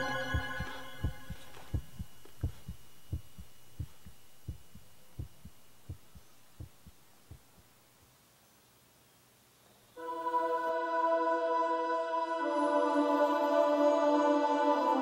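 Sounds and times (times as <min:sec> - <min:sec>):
heartbeat thuds: 0:00.0 - 0:07.8.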